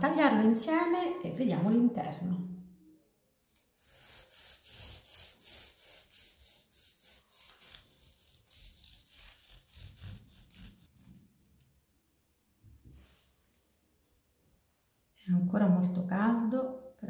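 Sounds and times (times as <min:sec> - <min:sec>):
knife sawing through crisp pastry: 0:03.8 - 0:11.2.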